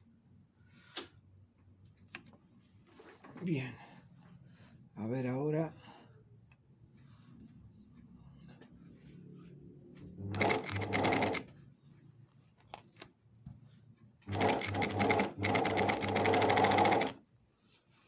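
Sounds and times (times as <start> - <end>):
industrial sewing machine stitching: 10.2 - 11.5, 14.3 - 17.2.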